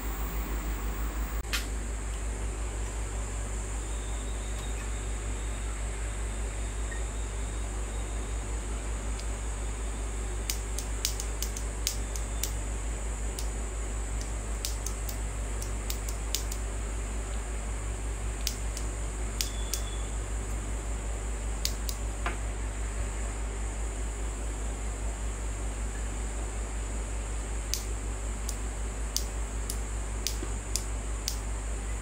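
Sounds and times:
high hiss: 0:00.0 - 0:01.4
inverter humming: 0:00.0 - 0:01.7
light clicks: 0:29.2 - 0:31.4.

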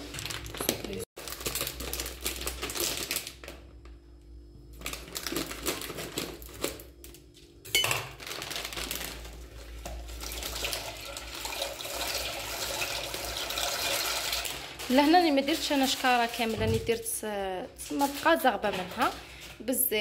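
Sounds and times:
plastic bag crinkling: 0:00.0 - 0:03.8, 0:04.7 - 0:11.3, 0:12.4 - 0:17.2, 0:17.8 - 0:19.5
pasta poured into pot: 0:08.2 - 0:16.3.

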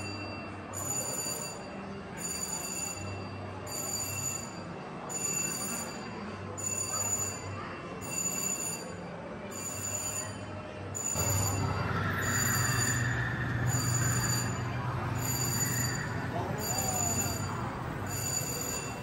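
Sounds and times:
amusement park hubbub: 0:00.0 - 0:19.0
high electronic ringing tone: 0:08.0 - 0:19.0
low rumble: 0:11.2 - 0:18.2.

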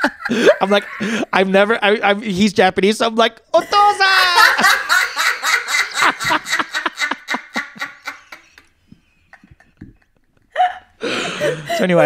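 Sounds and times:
people laughing hard: 0:00.0 - 0:01.3, 0:03.7 - 0:12.0.

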